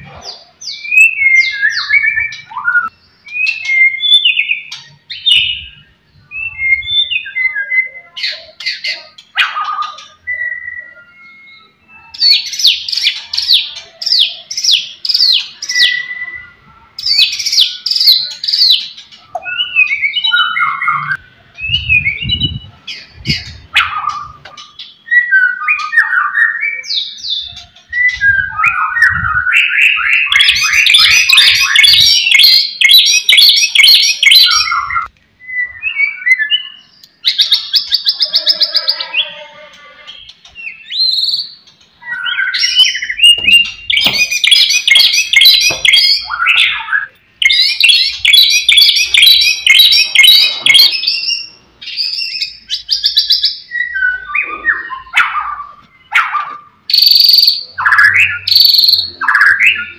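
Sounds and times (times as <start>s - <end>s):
bird singing varied whistles: 0.7s - 8.2s, 40.6s - 55.2s, 56.9s - 59.9s
low thumps: 43.2s - 44.7s.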